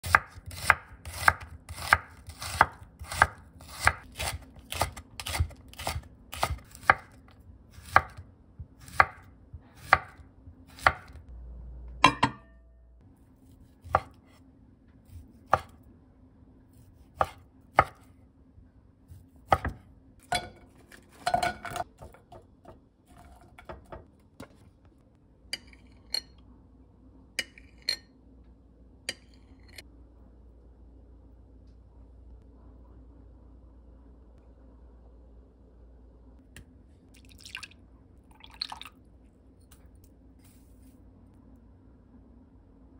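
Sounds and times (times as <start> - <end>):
knife chopping on wooden board: 0.0 - 7.2, 8.8 - 11.2, 15.5 - 15.7, 19.4 - 22.4.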